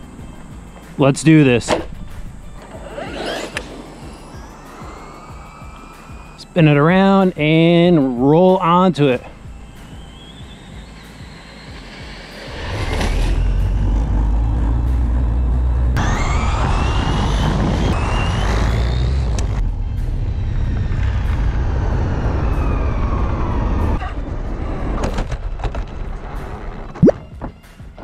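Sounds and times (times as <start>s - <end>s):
road rumble: 0.0s - 27.0s
rc truck motor whine: 2.0s - 7.7s, 9.2s - 24.0s.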